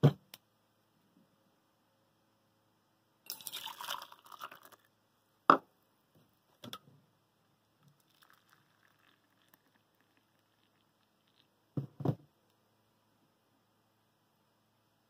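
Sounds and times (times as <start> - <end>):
water trickling from kettle: 3.3 - 4.8, 8.0 - 11.5
water pouring into metal cup: 3.3 - 4.9, 7.9 - 11.5
cup knocking on wooden table: 11.8 - 12.2.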